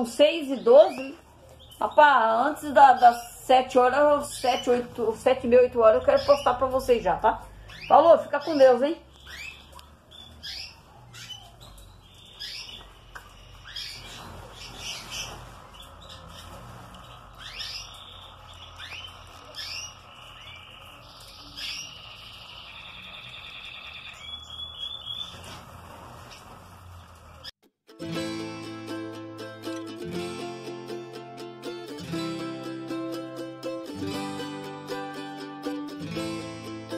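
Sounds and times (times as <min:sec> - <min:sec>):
canaries chirping: 0:00.0 - 0:27.5.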